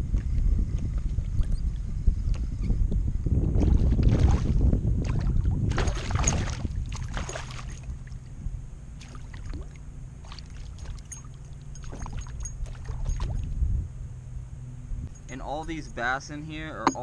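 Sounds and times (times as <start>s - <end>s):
low rumble: 0.0s - 17.0s
fish splashing at water surface: 5.1s - 7.9s.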